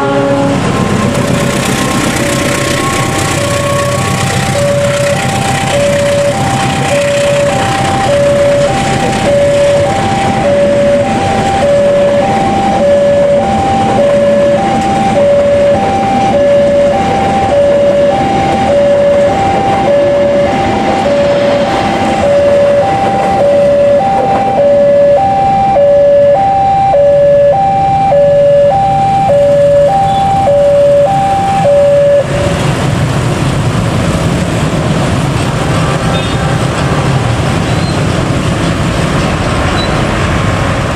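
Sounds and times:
two-tone crossing alarm chiming: 0.0s - 32.6s
train coaches rumbling past: 0.0s - 40.9s
motorcycle engines running: 0.6s - 21.3s.

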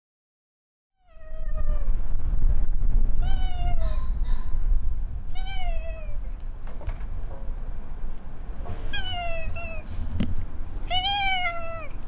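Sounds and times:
cat meowing: 1.0s - 1.9s, 3.2s - 4.5s, 5.3s - 6.4s, 8.9s - 9.9s, 10.8s - 12.0s
steady low rumble: 1.0s - 12.0s.

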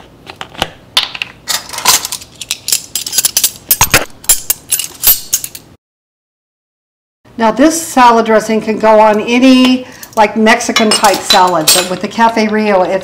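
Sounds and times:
metal spoons clinking: 1.5s - 5.7s, 10.7s - 12.1s.

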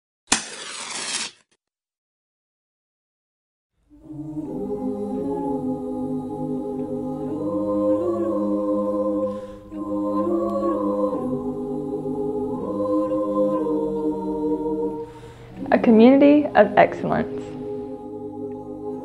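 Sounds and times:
choir singing held chords: 3.8s - 19.0s.

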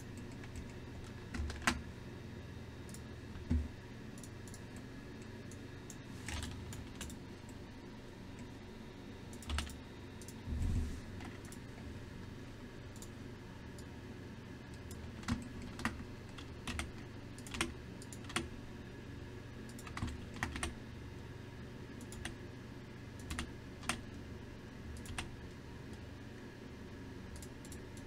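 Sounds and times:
steady low hum: 0.0s - 28.0s
keyboard keys clicking: 0.2s - 1.8s, 9.3s - 10.4s, 14.8s - 18.5s, 19.7s - 20.7s, 23.2s - 24.0s, 25.0s - 25.3s.

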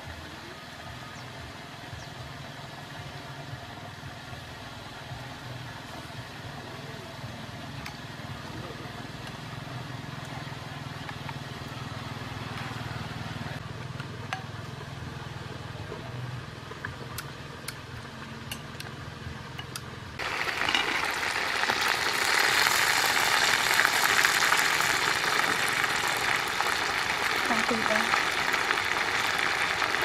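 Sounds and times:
pot boiling with loud hiss: 0.0s - 13.6s, 19.7s - 30.0s.

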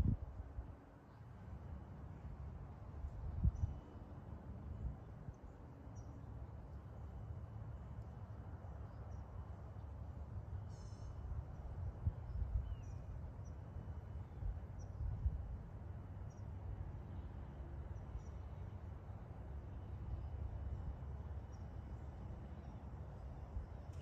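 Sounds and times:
faint bird chirps: 10.6s - 11.7s
short bird call: 10.7s - 11.2s.

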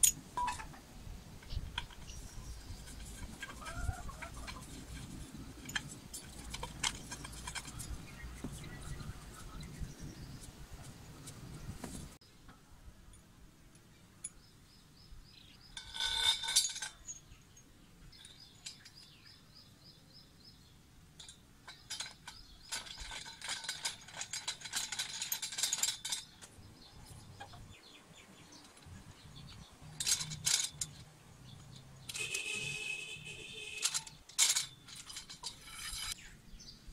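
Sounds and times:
metal fittings clinking on steel pipe: 15.8s - 17.2s, 21.2s - 26.5s, 33.5s - 36.2s.

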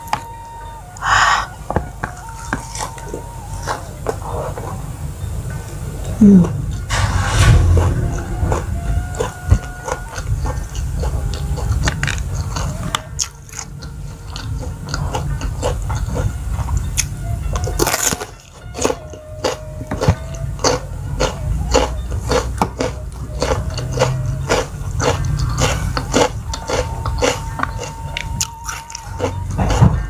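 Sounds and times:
chewing and smacking: 1.7s - 4.8s, 9.2s - 30.0s
crunchy bite: 17.8s - 30.0s.

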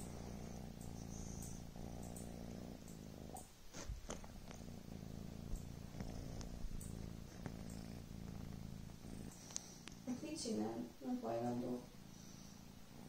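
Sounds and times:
kitten purring: 0.0s - 13.0s
faint clicks: 0.7s - 4.7s, 5.5s - 8.4s, 9.3s - 10.1s.

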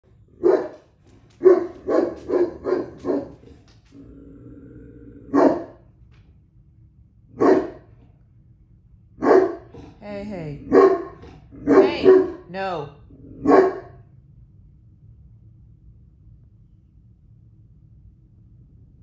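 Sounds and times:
steady low hum: 0.0s - 19.0s
dog barking: 0.4s - 3.6s, 5.3s - 5.8s, 7.4s - 7.9s, 9.2s - 10.0s, 10.6s - 12.6s, 13.4s - 14.0s.

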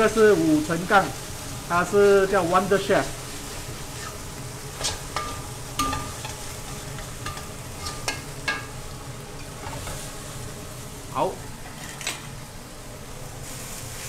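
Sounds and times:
chicken sizzling in a wok: 0.0s - 14.0s
metal spatula scraping a wok: 3.4s - 4.2s, 4.8s - 8.3s.

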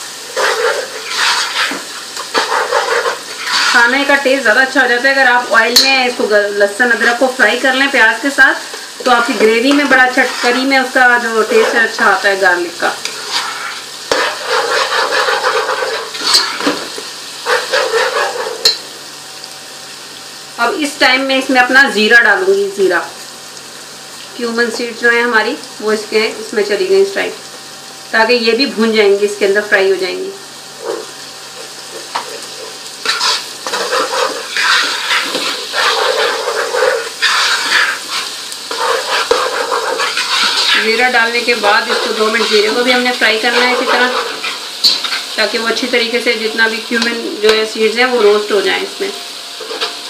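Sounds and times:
spoon scraping through onions: 0.0s - 5.0s, 6.9s - 18.8s, 30.7s - 46.1s, 49.5s - 50.0s
onions sizzling in oil: 0.0s - 50.0s.

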